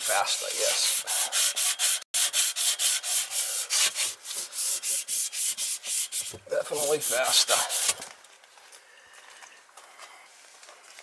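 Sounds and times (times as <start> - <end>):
scrubbing metal pipe by hand: 0.0 - 8.1.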